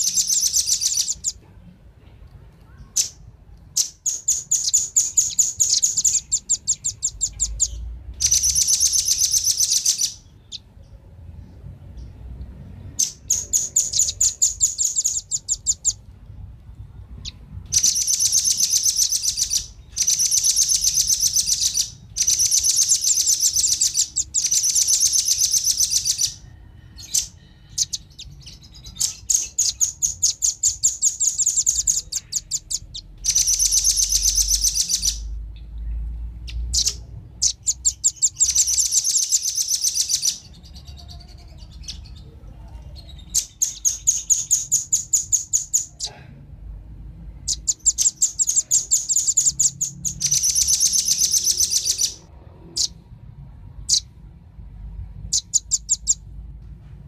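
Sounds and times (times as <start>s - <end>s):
nuthatches chattering trills: 0.0s - 1.4s, 3.8s - 10.7s, 13.0s - 16.0s, 17.2s - 26.4s, 27.0s - 35.4s, 36.5s - 42.2s, 47.4s - 52.2s, 55.3s - 56.2s.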